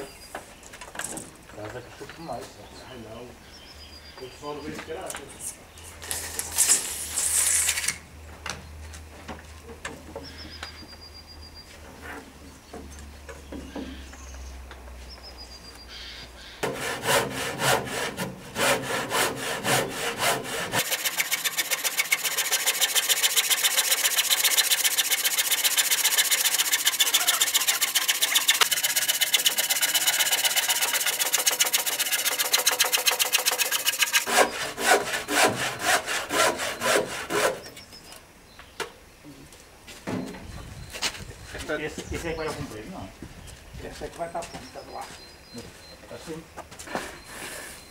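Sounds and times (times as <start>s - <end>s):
handsaw cutting timber: 16.6s - 37.7s.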